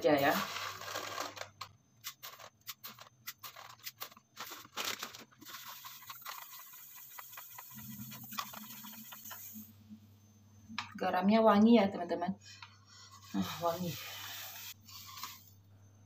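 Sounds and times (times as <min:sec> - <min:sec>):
plastic bag crinkling: 0:00.1 - 0:08.8
spoon scraping plastic bowl: 0:00.2 - 0:04.5, 0:13.0 - 0:15.6.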